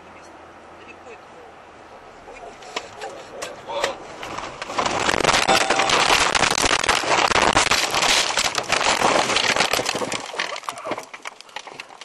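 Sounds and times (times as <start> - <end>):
snow and ice striking car: 4.2 - 12.0.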